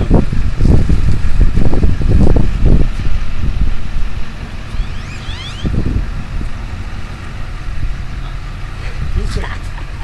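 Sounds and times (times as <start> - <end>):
wind buffeting microphone: 0.0 - 8.1
low rumble: 0.0 - 9.3
short rising chirps: 4.6 - 6.0.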